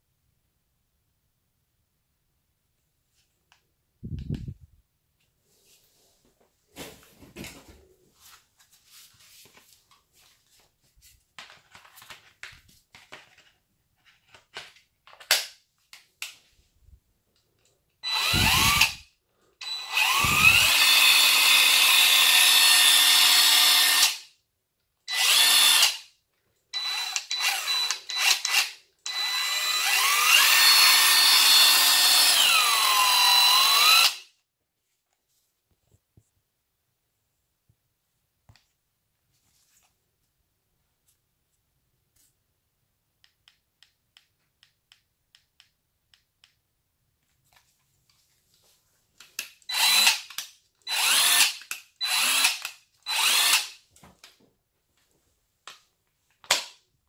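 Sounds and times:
impact wrench motor whine: 0:18.0 - 0:19.0, 0:19.6 - 0:24.2, 0:25.1 - 0:26.0, 0:26.8 - 0:34.2, 0:49.7 - 0:50.2, 0:50.9 - 0:53.7.

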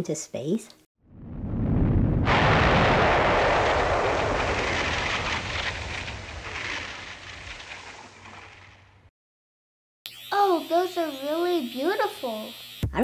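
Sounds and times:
low rumble: 0:01.1 - 0:09.1.

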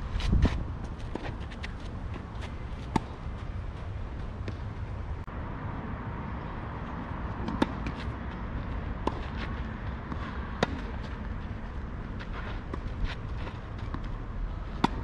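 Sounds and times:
tennis ball hit by racket: 0:07.4 - 0:08.0, 0:10.1 - 0:11.0, 0:14.8 - 0:15.0.

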